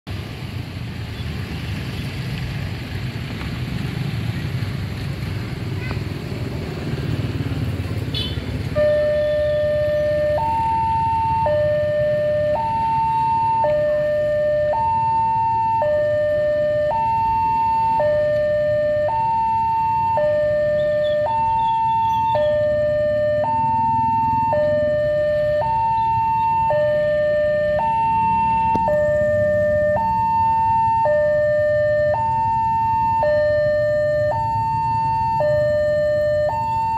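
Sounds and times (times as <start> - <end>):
road traffic rumble: 0.1 - 36.9
level crossing two-tone alarm: 8.8 - 36.9.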